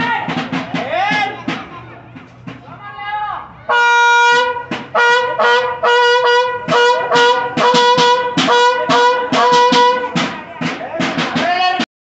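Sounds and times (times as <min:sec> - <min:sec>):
horn blasts: 0:03.7 - 0:10.4.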